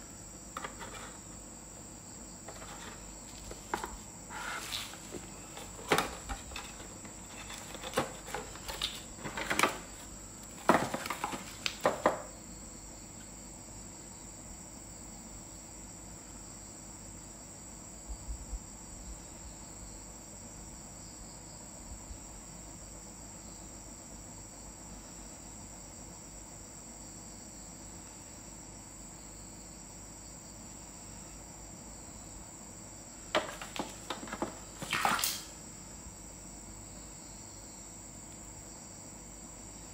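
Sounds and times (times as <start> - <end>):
knife and hands scraping box: 2.5 - 9.7.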